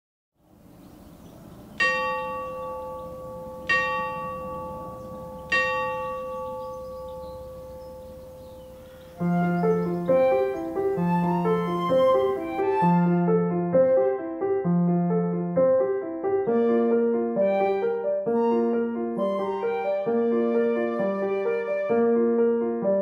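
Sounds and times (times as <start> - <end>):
gentle piano music: 0.4 - 23.0
clock bell striking: 1.8 - 8.7.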